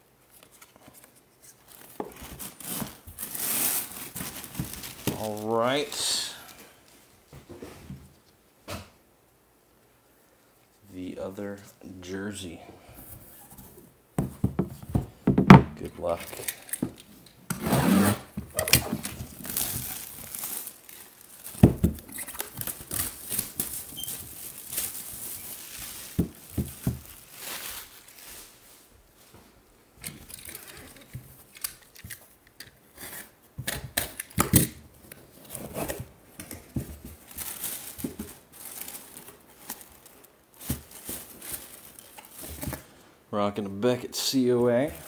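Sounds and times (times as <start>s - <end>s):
paper packing rustling: 0.3s - 6.9s, 18.0s - 28.7s, 35.0s - 43.0s
wrapping tearing and crinkling: 0.3s - 6.9s, 17.9s - 28.6s, 30.2s - 33.4s, 35.0s - 43.0s.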